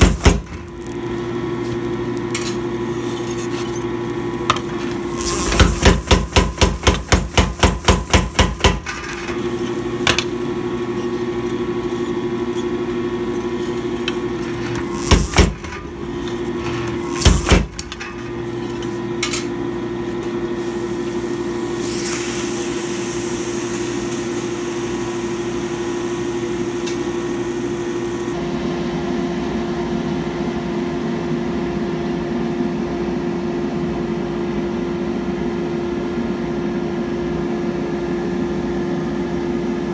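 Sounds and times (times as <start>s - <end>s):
machine motor running: 0.0s - 25.8s.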